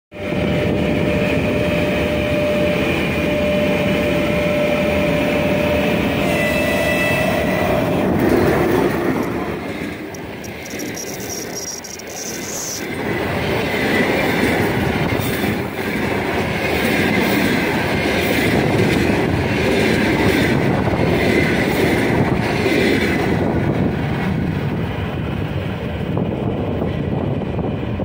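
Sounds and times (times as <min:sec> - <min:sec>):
train whine: 0:00.1 - 0:28.0
train wheels rumbling on rails: 0:00.2 - 0:28.0
wheel squealing on rail: 0:01.2 - 0:15.7.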